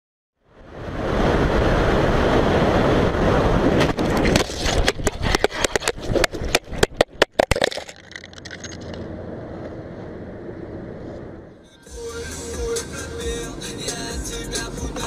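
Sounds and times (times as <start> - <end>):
wind and motorcycle road noise: 0.4 - 11.6
camera tumbling knocks and scrapes: 3.8 - 9.8.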